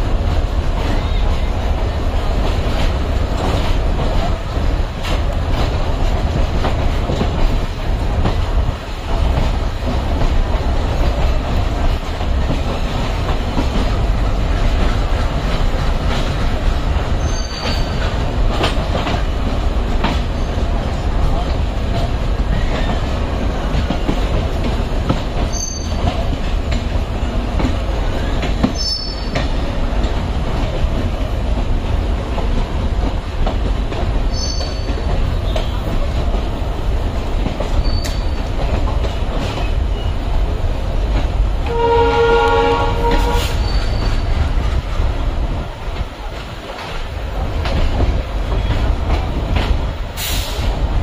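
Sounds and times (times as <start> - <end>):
train coaches rumbling on track: 0.0 - 51.0
wheel squeals: 17.2 - 18.1, 25.5 - 26.2, 28.7 - 29.4, 34.3 - 35.8, 37.8 - 38.5, 43.5 - 44.4
train horn: 41.6 - 43.8.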